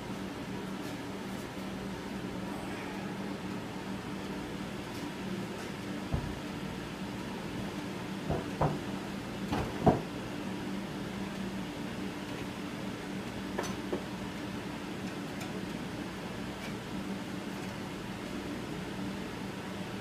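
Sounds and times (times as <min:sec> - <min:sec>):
steady low hum: 0:00.0 - 0:20.0
knocks on metal frame: 0:06.1 - 0:06.4, 0:08.3 - 0:08.8, 0:09.5 - 0:10.1.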